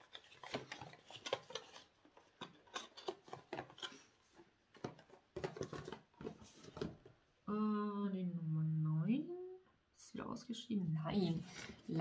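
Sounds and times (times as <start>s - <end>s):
cardboard packaging handled: 0.0s - 7.1s.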